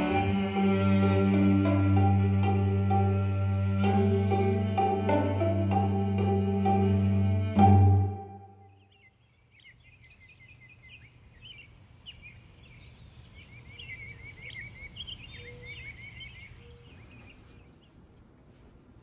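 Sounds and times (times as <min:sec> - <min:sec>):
small birds singing: 0:08.3 - 0:18.0.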